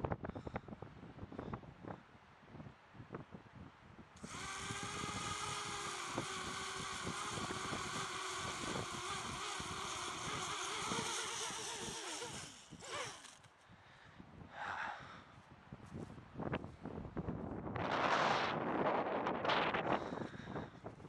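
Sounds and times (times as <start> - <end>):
wind buffeting microphone: 0.0 - 13.2
drone motors whining: 4.2 - 13.5.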